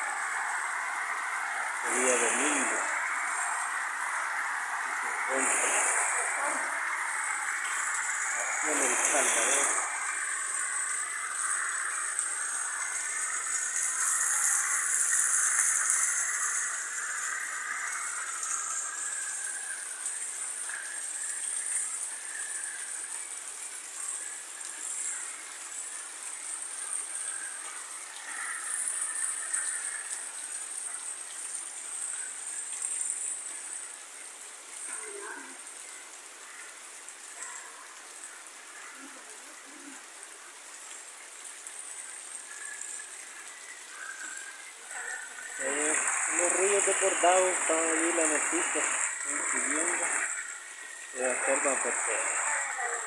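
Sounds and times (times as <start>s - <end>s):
heavy rain pouring: 0.0s - 53.0s
runoff splashing onto ground: 0.0s - 53.0s.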